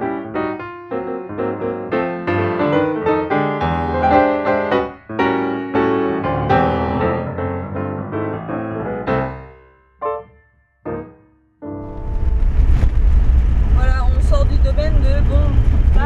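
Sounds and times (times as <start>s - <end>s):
lively piano music: 0.0s - 12.4s.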